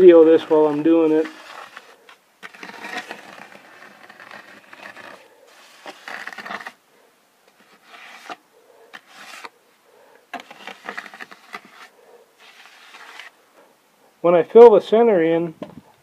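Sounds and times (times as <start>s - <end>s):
trowel scraping wet concrete: 0.0s - 6.8s, 7.6s - 9.5s, 10.3s - 13.3s.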